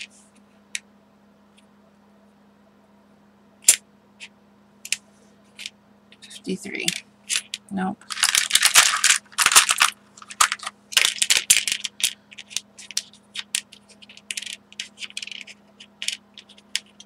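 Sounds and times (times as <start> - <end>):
small craft items rattling: 6.7 - 17.0.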